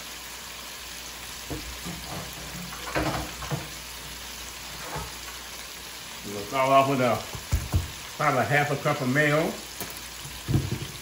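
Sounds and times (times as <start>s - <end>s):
hot oil sizzling: 0.0s - 11.0s.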